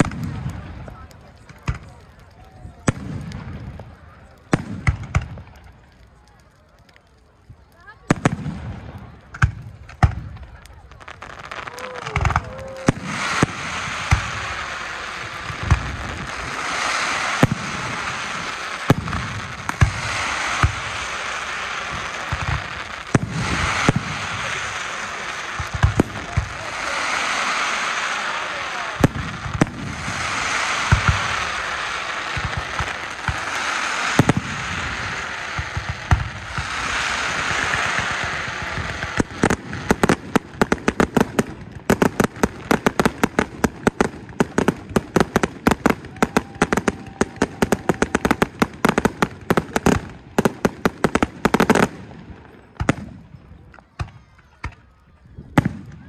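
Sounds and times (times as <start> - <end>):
crackle of firework stars: 0.0 - 56.0
firework shells bursting with bangs: 4.5 - 5.6, 11.4 - 52.0.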